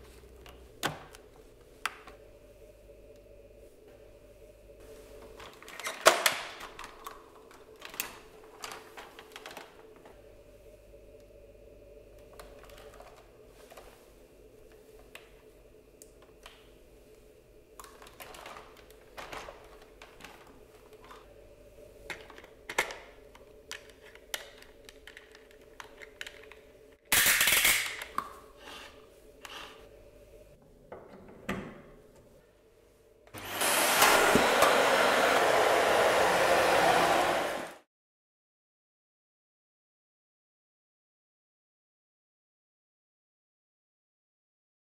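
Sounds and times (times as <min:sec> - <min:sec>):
plastic parts clicking and snapping: 0:22.1 - 0:28.3
vacuum motor rushing air: 0:33.4 - 0:37.9.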